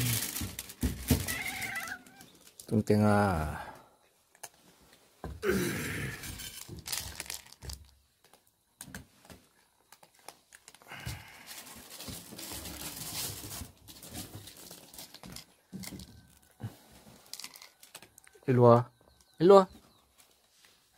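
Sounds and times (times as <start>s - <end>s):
plastic bag crinkling: 0.0s - 2.9s, 6.2s - 8.4s, 9.8s - 16.4s.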